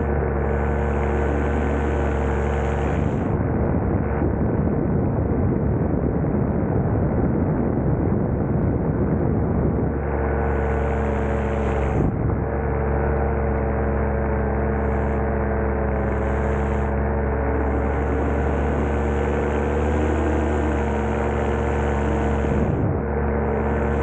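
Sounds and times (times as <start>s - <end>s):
light aircraft engine: 0.0s - 24.0s
rough air rush: 13.8s - 24.0s.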